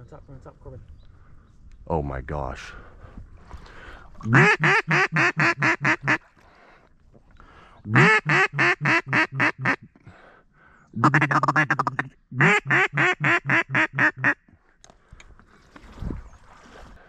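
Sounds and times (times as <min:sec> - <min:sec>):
duck call chattering: 0:04.3 - 0:06.2, 0:07.9 - 0:09.9, 0:11.0 - 0:14.4
duck call quacks: 0:04.3 - 0:06.2, 0:07.9 - 0:09.9, 0:11.0 - 0:14.4.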